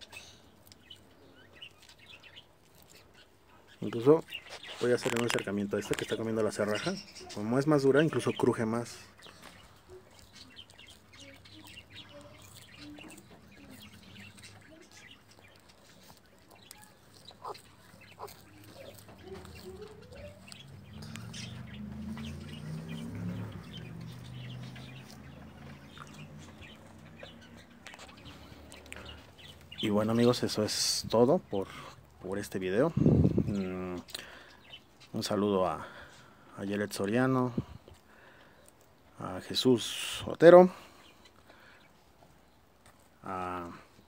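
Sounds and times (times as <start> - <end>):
tortoise chewing leaves: 0.0 - 44.0.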